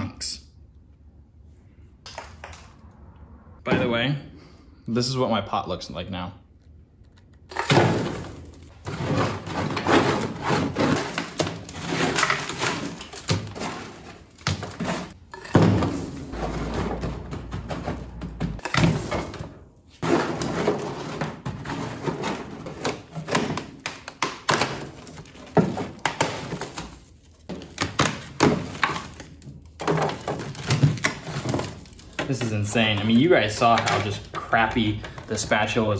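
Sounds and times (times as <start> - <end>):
dry ice clattering on metal floor: 7.5 - 34.2.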